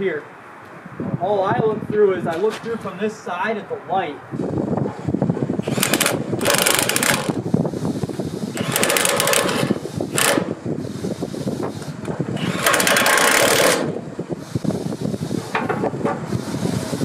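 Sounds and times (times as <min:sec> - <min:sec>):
impact driver hammering: 0:05.6 - 0:07.4, 0:12.4 - 0:13.9.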